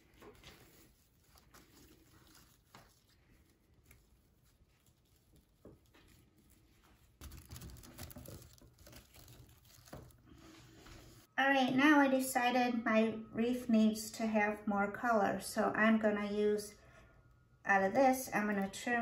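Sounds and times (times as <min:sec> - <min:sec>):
ribbon rustling and crinkling: 0:00.0 - 0:11.3
rustling handling noise: 0:00.0 - 0:11.3.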